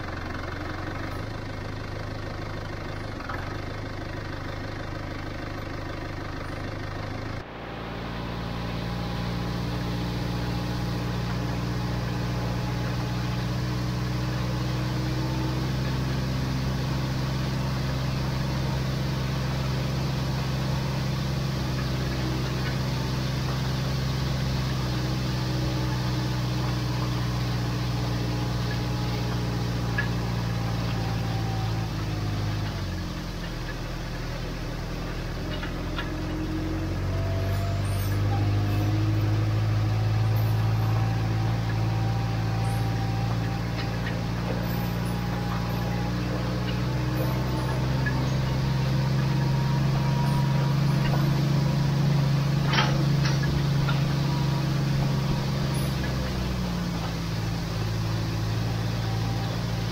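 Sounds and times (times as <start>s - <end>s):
tractor engine running: 0.0s - 59.9s.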